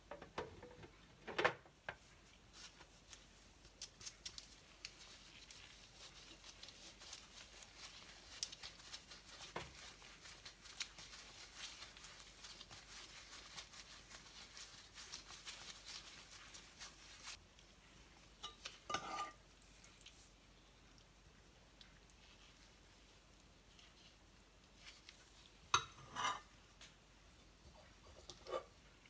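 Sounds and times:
disposable gloves crinkling: 2.0 - 20.4, 22.1 - 25.8.

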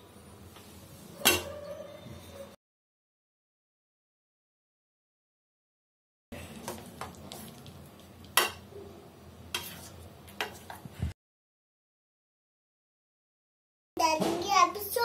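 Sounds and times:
hand mixing food rustling: 6.4 - 8.4.

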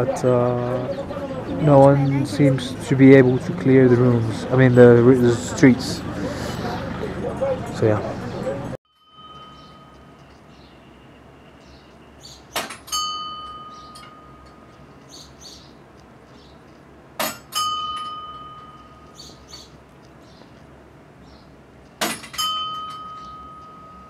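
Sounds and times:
prayer wheel bell ringing: 6.9 - 11.0, 12.6 - 14.8, 17.2 - 19.4, 22.0 - 24.0.

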